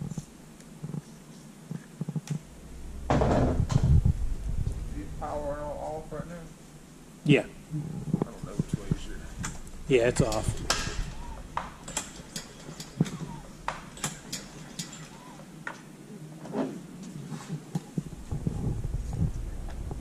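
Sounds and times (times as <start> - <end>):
low rumble: 2.4 - 14.0, 17.9 - 20.0.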